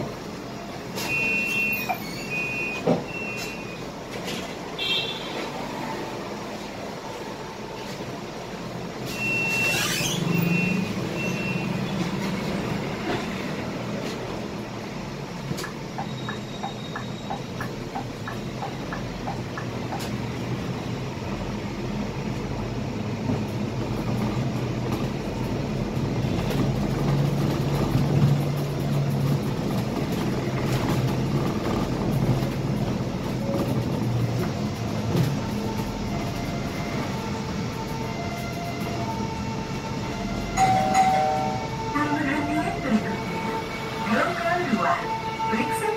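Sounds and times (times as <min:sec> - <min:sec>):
bus diesel engine drone: 0:00.0 - 0:45.9
road noise: 0:00.0 - 0:45.9
short high beeps: 0:01.0 - 0:03.8.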